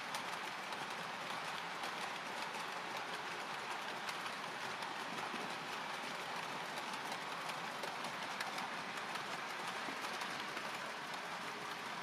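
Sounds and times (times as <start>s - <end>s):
faint clicks: 0.0s - 12.0s
model train wheels clattering: 0.0s - 12.0s.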